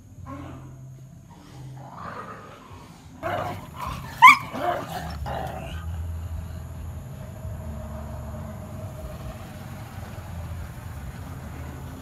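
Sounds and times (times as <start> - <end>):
dogs growling: 0.1 - 6.7.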